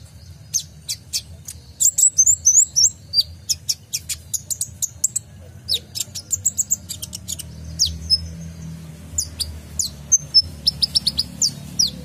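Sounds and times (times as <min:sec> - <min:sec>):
sunbird singing high chirps: 0:00.0 - 0:12.0.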